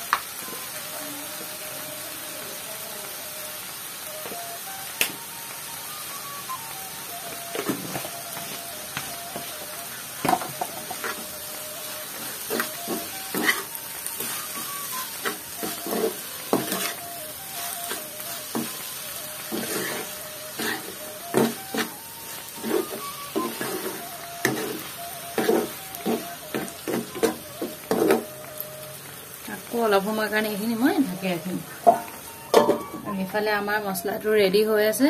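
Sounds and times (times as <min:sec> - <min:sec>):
greens sizzling in hot oil: 0:00.0 - 0:35.0
metal spoon scraping a pan: 0:12.2 - 0:17.0, 0:19.5 - 0:22.0, 0:22.6 - 0:28.2.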